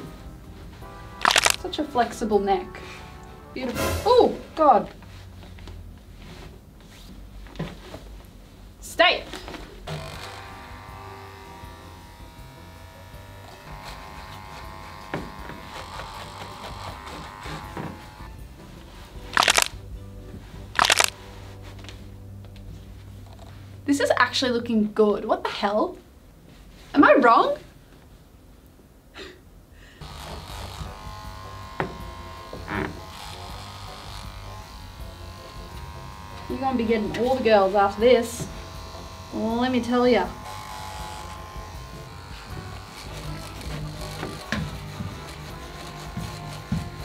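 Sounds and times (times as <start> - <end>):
electric hair clippers buzzing: 1.2 - 1.6, 9.9 - 18.6, 19.4 - 19.7, 20.8 - 21.1, 30.0 - 47.0.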